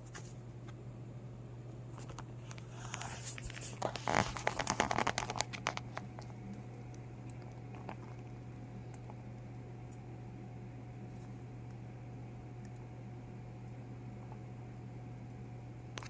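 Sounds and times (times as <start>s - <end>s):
steady low hum: 0.0s - 16.0s
hamster crunching treat: 1.9s - 10.0s.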